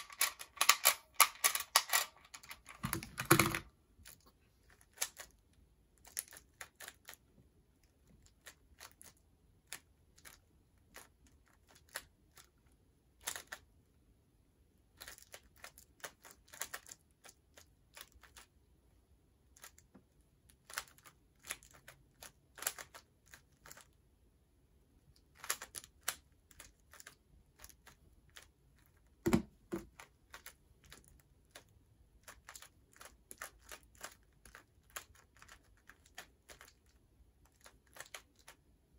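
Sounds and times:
plastic puzzle pieces clicking: 0.0 - 5.4, 20.6 - 24.0, 25.2 - 28.5.

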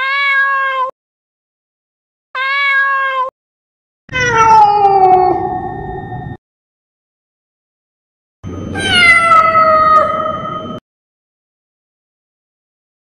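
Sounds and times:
cat meowing: 0.0 - 0.9, 2.4 - 3.3, 4.1 - 5.6, 8.7 - 10.6.

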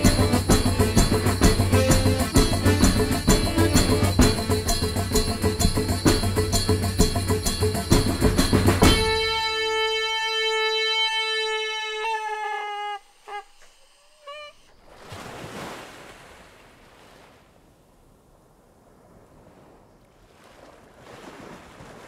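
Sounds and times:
folk music with fast percussion: 0.0 - 12.3
hand-held horn note: 8.8 - 14.7
short horn honks bending in pitch: 8.9 - 14.6.

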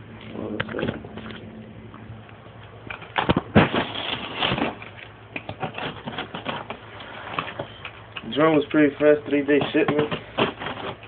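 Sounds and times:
plastic wrap rustling: 3.0 - 11.0.

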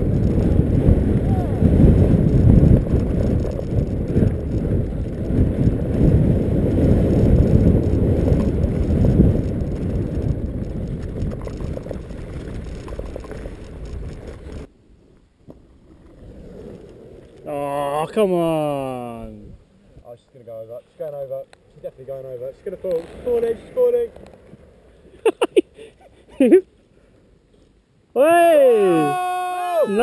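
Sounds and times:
board wheels rumbling over grass: 0.0 - 14.7
wind buffeting microphone: 0.0 - 14.7.

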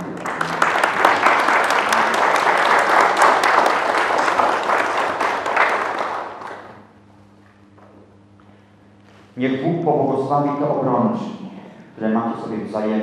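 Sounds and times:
congregation applauding: 0.0 - 6.8.

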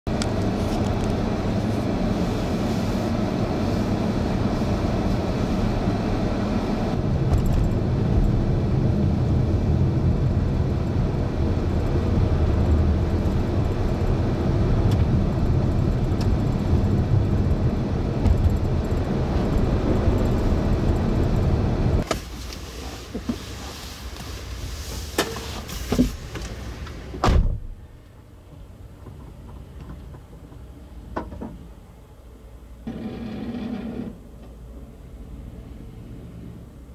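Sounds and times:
car road and engine noise: 0.1 - 36.9
thump: 27.2 - 27.7.

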